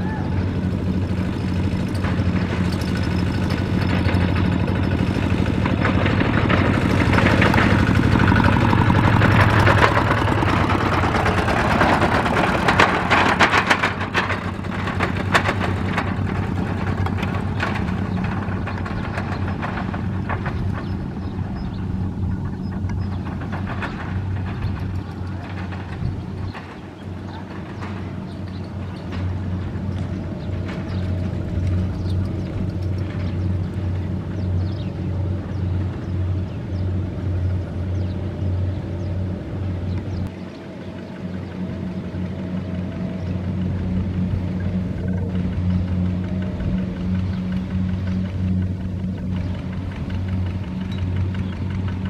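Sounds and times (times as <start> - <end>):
diesel tractor engine running: 0.0 - 52.0
knocking and rattling: 0.6 - 37.0.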